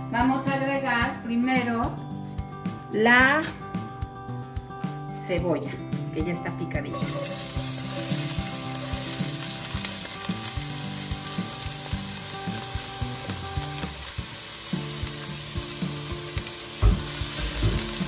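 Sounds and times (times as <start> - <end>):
onion sizzling in oil: 6.6 - 18.0.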